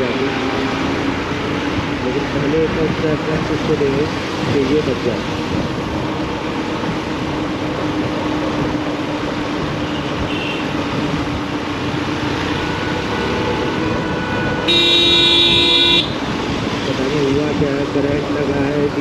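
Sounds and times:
road traffic noise: 0:00.0 - 0:19.0
vehicle horn honking: 0:09.8 - 0:10.7, 0:12.7 - 0:16.2.

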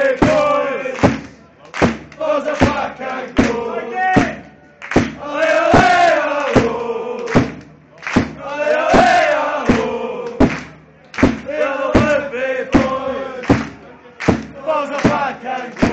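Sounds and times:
football supporters chanting: 0:00.0 - 0:15.9
sharp drum beat: 0:00.1 - 0:15.9.

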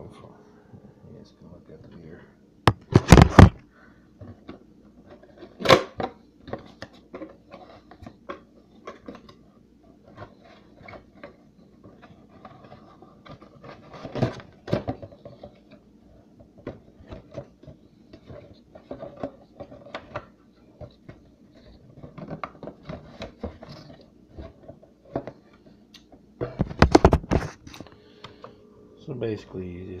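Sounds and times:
knock on cardboard box: 0:02.7 - 0:03.6.

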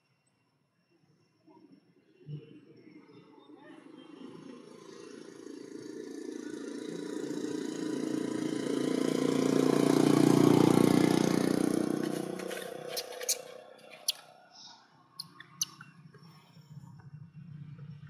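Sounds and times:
motor vehicle driving past: 0:04.9 - 0:14.5.

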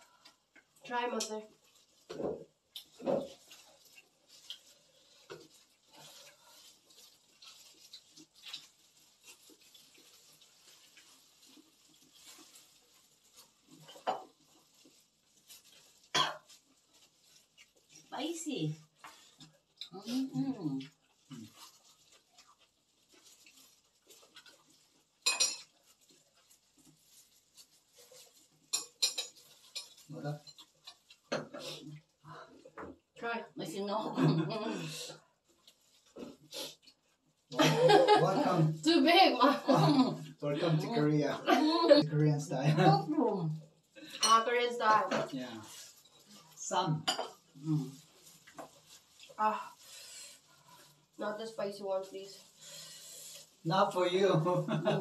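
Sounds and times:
plastic gloves crinkling: 0:00.0 - 0:55.0
eating clicks and rustles: 0:00.1 - 0:18.2, 0:20.8 - 0:33.1, 0:47.4 - 0:51.2
chewing: 0:19.0 - 0:27.0.

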